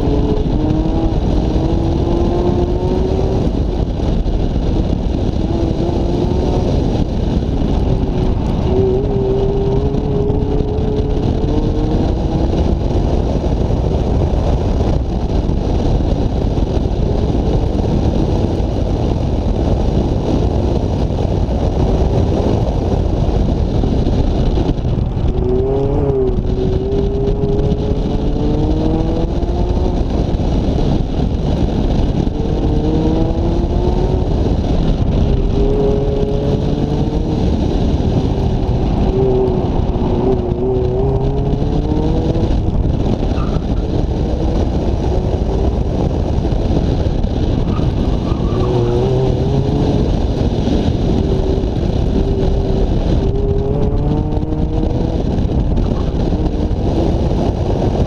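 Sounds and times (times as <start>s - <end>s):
car engine accelerating: 0.0s - 19.3s, 20.0s - 58.0s
wind buffeting microphone: 0.0s - 58.0s.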